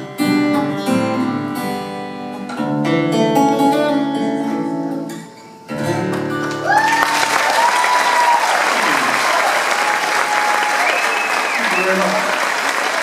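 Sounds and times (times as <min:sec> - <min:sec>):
acoustic guitar picking: 0:00.0 - 0:06.6
audience applause: 0:06.4 - 0:13.0
audience cheering: 0:06.5 - 0:13.0.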